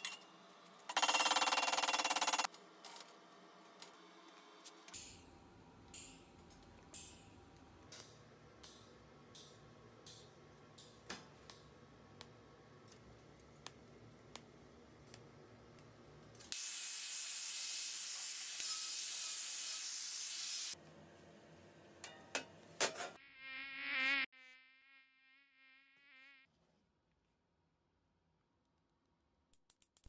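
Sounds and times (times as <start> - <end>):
mosquito whine: 23.2 - 26.5.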